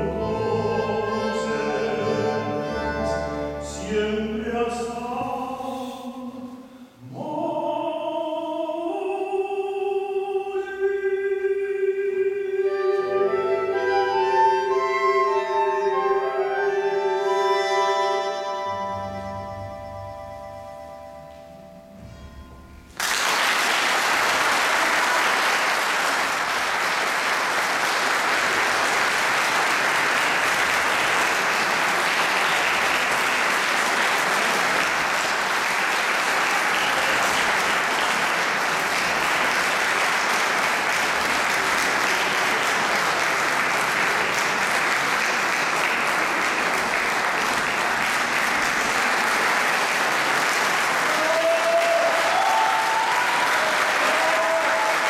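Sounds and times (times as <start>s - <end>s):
audience applauding: 23.0s - 55.0s.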